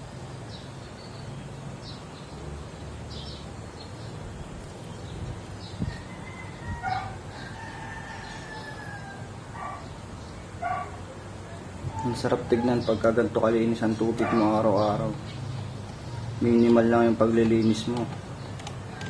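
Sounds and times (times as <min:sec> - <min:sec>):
rooster crowing: 0:05.8 - 0:09.9.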